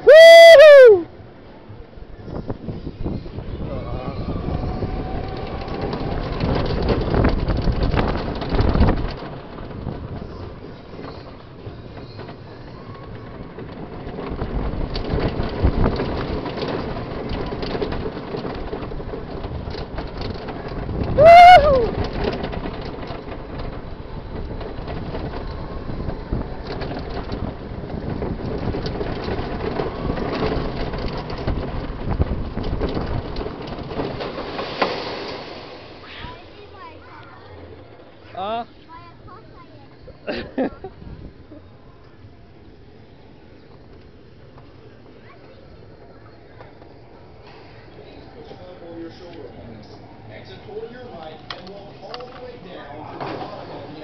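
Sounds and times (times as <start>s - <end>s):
rider whooping: 0.0s - 1.1s, 3.6s - 6.4s, 21.0s - 22.2s
roller coaster rumbling on track: 0.0s - 54.0s.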